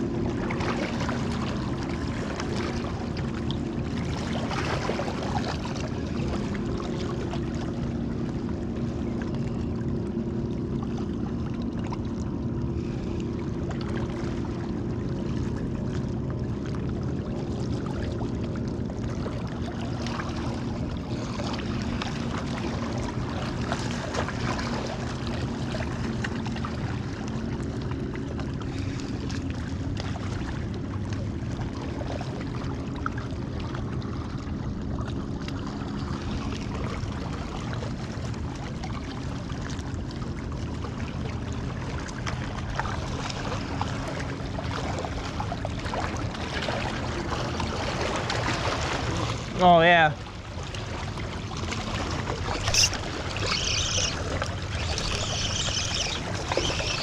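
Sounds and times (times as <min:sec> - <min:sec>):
low even hum: 0:00.0 - 0:57.0
waves lapping against rocks: 0:35.0 - 0:57.0.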